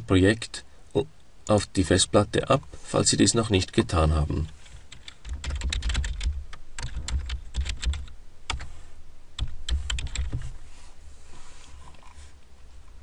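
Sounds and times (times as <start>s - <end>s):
typing on computer keyboard: 4.9s - 8.7s, 9.4s - 10.4s.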